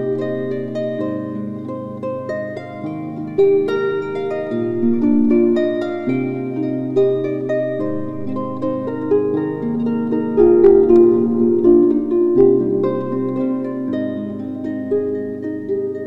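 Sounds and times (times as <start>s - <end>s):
plucked harp-like notes: 0.0s - 16.0s
held low tones: 3.4s - 15.0s.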